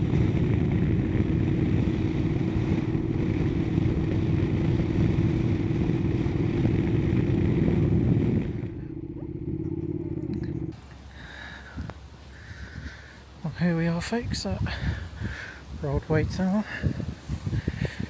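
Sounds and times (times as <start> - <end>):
motorcycle engine running: 0.0 - 10.8
wind and road noise: 0.0 - 18.0.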